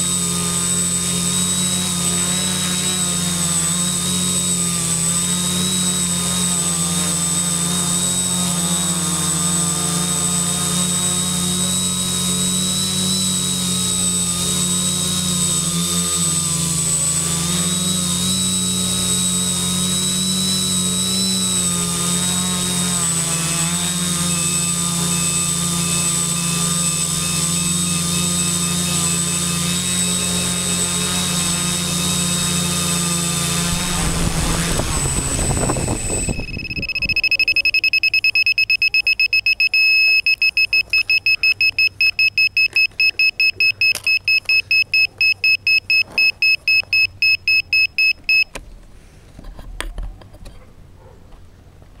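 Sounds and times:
drone motors whining: 0.0s - 48.6s
rapid electronic beeps: 35.6s - 48.5s.

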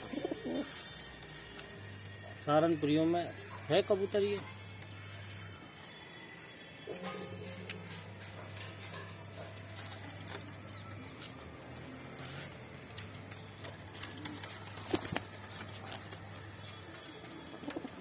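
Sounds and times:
pigeons cooing softly: 0.0s - 1.0s, 13.7s - 18.0s
feet and wings pattering: 13.5s - 18.0s.

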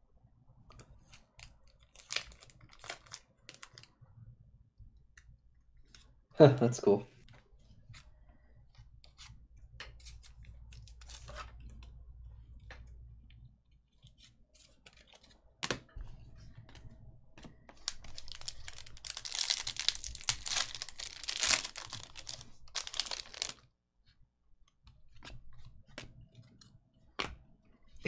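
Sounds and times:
wrappers tearing and crinkling: 1.4s - 3.9s, 17.8s - 23.6s.

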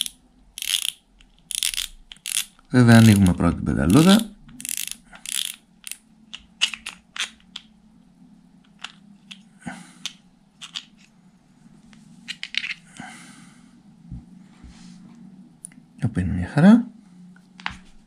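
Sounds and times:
fishing reel clicker clicking: 0.0s - 2.5s, 4.6s - 6.0s.

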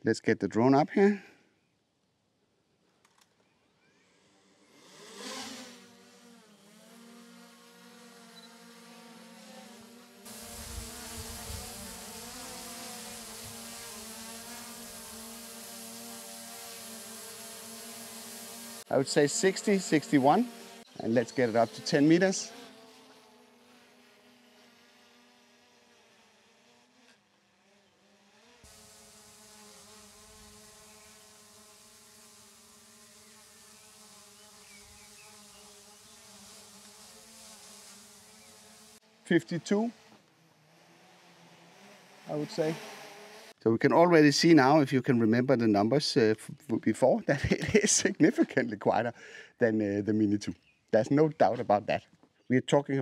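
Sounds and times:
drone propellers buzzing: 4.0s - 43.6s.

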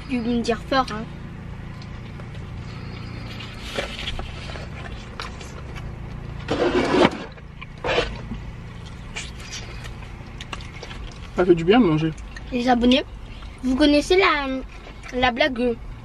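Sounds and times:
car engine idling: 0.0s - 16.0s
eating noises: 6.8s - 12.5s.

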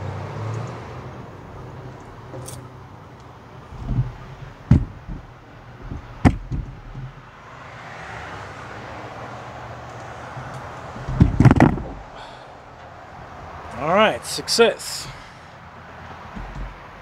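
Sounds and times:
steady background rumble: 1.0s - 7.6s, 9.9s - 17.0s
footsteps knocking on metal steps: 3.7s - 7.4s, 10.4s - 12.3s, 16.3s - 17.0s.

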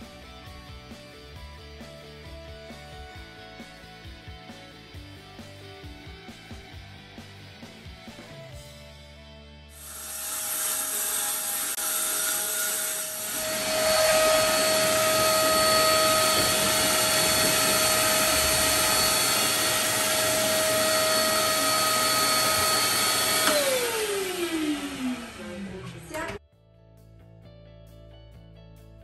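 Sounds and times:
electric motor whine: 9.8s - 26.4s.

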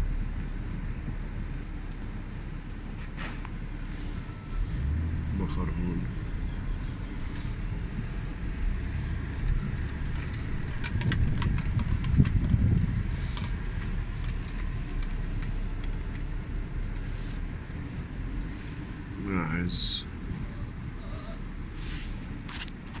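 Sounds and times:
car cabin rumble: 0.0s - 23.0s
sharp clicks and knocks: 9.4s - 16.3s.

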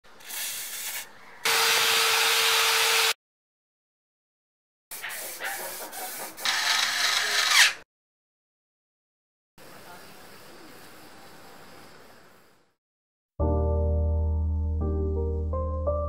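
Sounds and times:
aerosol can spraying: 0.2s - 1.1s, 4.9s - 6.6s.

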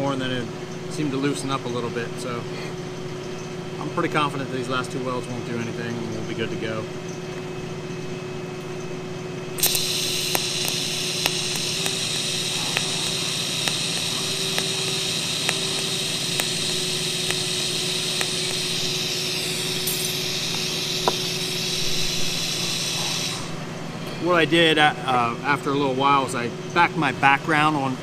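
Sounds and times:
faint regular ticks: 9.6s - 23.5s
welding arc hissing: 9.6s - 23.7s.

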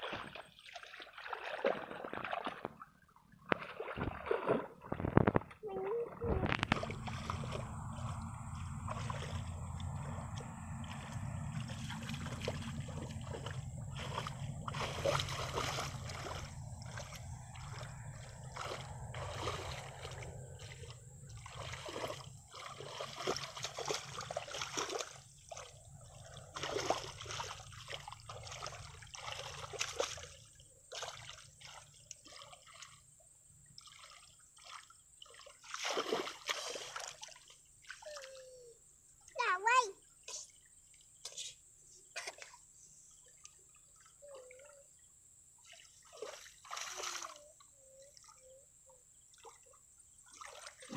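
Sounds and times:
hands splashing in muddy water: 0.0s - 5.5s, 6.3s - 33.0s, 33.8s - 38.4s, 45.6s - 47.4s
water trickling: 0.0s - 42.5s, 43.1s - 50.9s
low steady rumble: 5.2s - 30.8s.

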